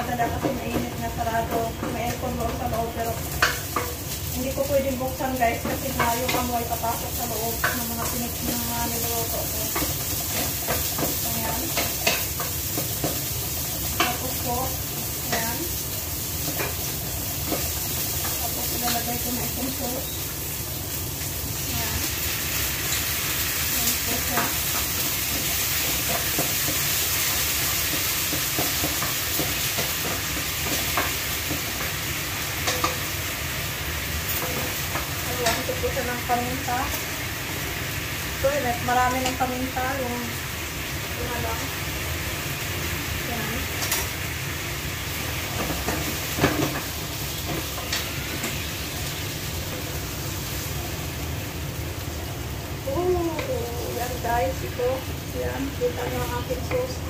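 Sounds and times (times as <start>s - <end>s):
food sizzling in a pan: 0.0s - 57.0s
spatula scraping and tapping pan: 0.2s - 4.1s, 9.7s - 13.2s, 16.4s - 19.1s, 24.2s - 32.0s, 32.6s - 33.0s
spatula knocking on pan: 24.1s - 32.0s.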